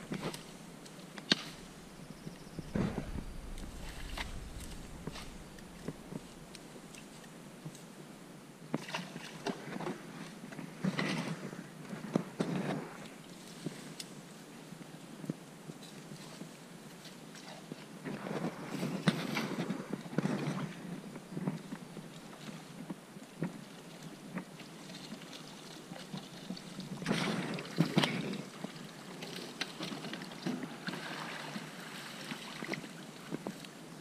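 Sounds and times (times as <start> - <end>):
water sloshing and splashing: 0.0 - 7.7, 23.5 - 33.7.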